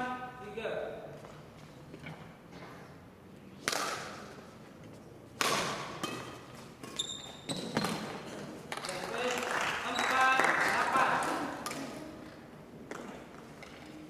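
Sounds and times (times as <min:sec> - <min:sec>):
rackets hitting shuttlecock: 0:03.6 - 0:09.4, 0:11.1 - 0:14.0
high squeak: 0:06.9 - 0:07.6.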